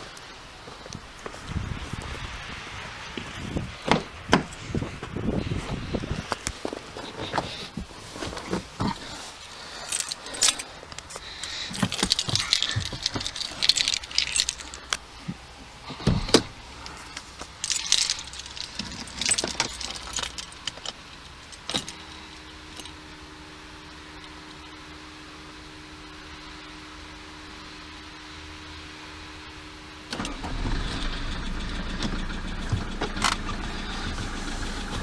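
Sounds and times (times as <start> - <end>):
steady low hum: 4.0 - 35.0
keys jangling: 9.8 - 10.7, 11.7 - 15.0, 17.6 - 22.1.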